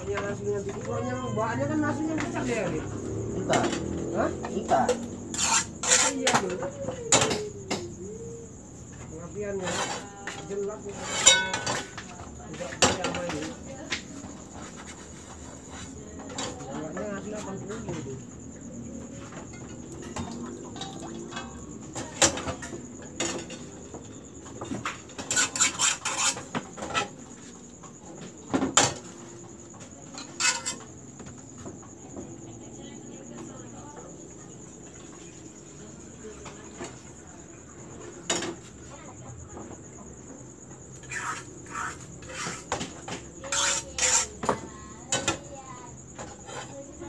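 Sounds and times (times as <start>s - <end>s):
crickets chirring: 0.0s - 47.0s
pans and ladle clattering: 10.9s - 12.0s.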